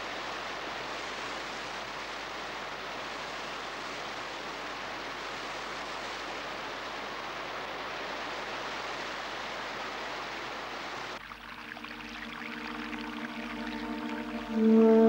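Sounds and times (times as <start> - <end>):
water pouring over waterfall: 0.0 - 15.0
music with held tones: 11.4 - 15.0.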